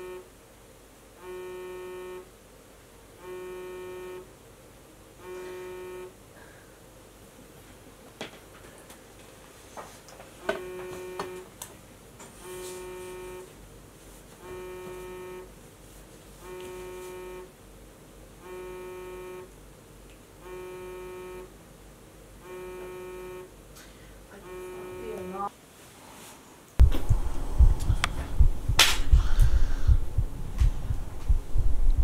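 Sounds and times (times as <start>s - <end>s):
phone ringing buzz tone: 0.0s - 0.3s, 1.2s - 2.3s, 3.2s - 4.3s, 5.2s - 6.2s, 10.4s - 11.5s, 12.4s - 13.5s, 14.4s - 15.5s, 16.4s - 17.6s, 18.4s - 19.6s, 20.4s - 21.6s, 22.4s - 23.6s, 24.3s - 25.5s.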